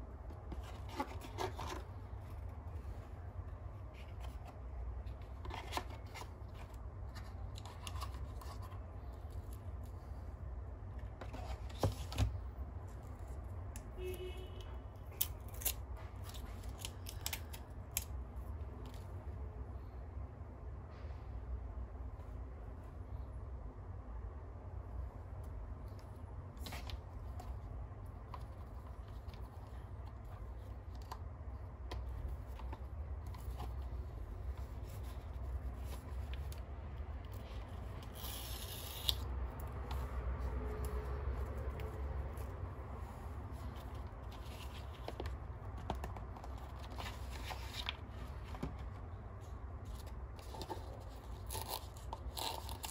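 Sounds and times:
paper and cardboard rustling: 0.1 - 10.1, 11.1 - 13.4, 26.6 - 52.9.

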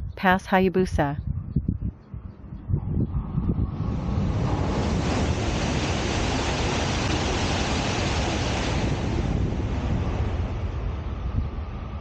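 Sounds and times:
train passing at high speed: 3.2 - 12.0.

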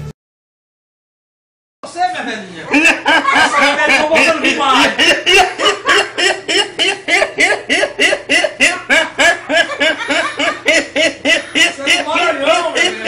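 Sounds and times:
young man laughing hard: 2.7 - 13.0.

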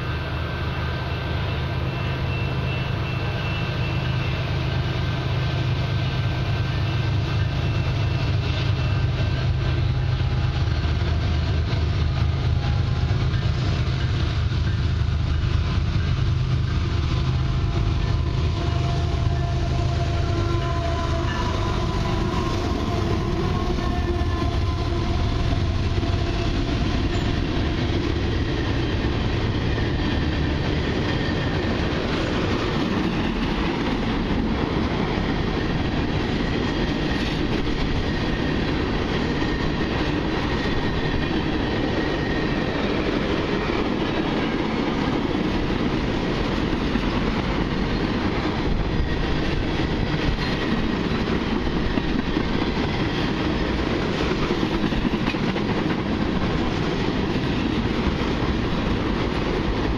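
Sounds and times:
diesel locomotive engine: 0.0 - 59.9
high wheel squeal: 1.0 - 4.9
freight train wheels clattering: 1.4 - 59.9.

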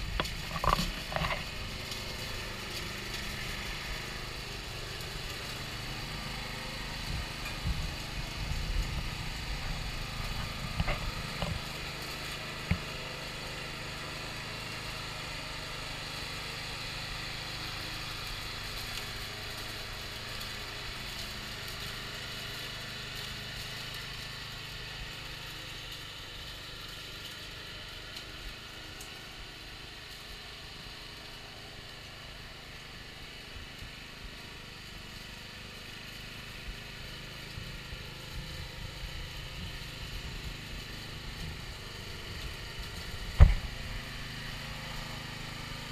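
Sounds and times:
lawn mower engine running: 0.0 - 45.9
knocks and bumps: 43.4 - 43.8.

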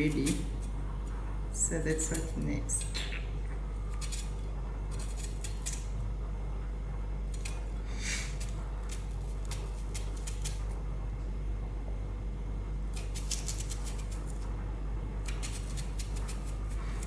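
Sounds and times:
knife cutting vegetables: 0.0 - 0.7, 3.9 - 5.9, 7.3 - 10.6, 12.9 - 14.4, 15.2 - 17.0
steady low hum: 0.0 - 17.0.

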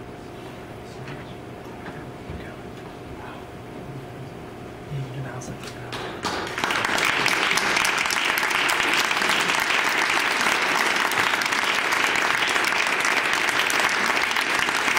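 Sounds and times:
audience applauding: 6.2 - 14.9.

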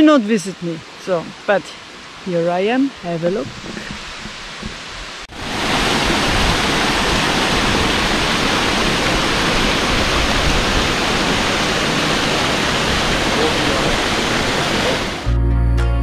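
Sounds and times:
waterfall rushing: 0.0 - 15.3.

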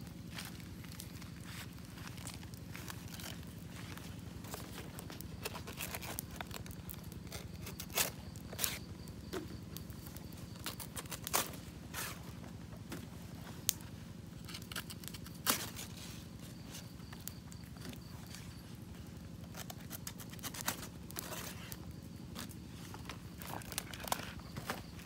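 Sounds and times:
leaf rustling and tearing: 0.2 - 8.9, 10.5 - 12.2, 14.4 - 16.9, 19.4 - 24.8.

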